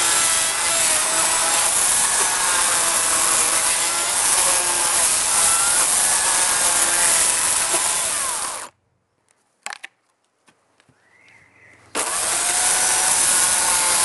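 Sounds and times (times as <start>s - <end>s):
electric chainsaw cutting log: 0.0s - 8.7s, 11.9s - 14.0s.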